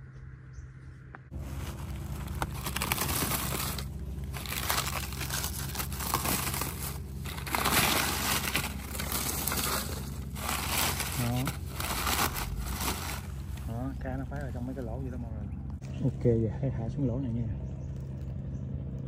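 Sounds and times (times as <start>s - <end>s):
crackling and crumpling rustle: 1.3s - 13.7s.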